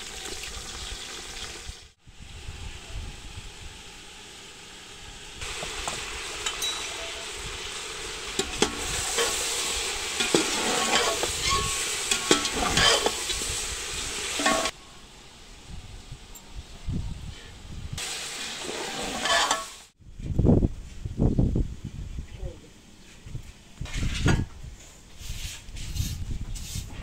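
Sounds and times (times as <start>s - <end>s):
chicken and onions sizzling in oil: 0.0s - 16.7s, 17.9s - 20.0s
metal spoon scraping pot: 10.2s - 13.2s, 18.9s - 19.8s.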